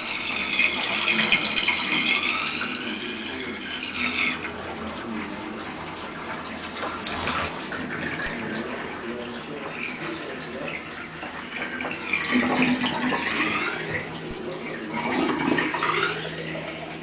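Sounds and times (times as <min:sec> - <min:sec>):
water splashing into bathtub: 0:00.0 - 0:17.0.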